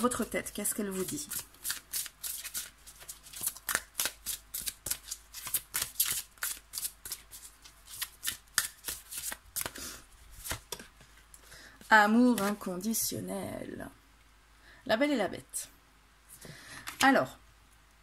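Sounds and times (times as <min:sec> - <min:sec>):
cards being shuffled: 0:00.8 - 0:11.2, 0:11.8 - 0:12.7.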